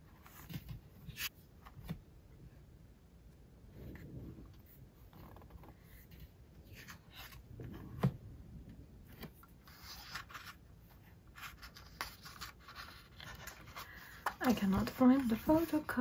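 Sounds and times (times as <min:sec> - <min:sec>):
album pages rustling: 0:05.0 - 0:08.2, 0:09.0 - 0:16.0.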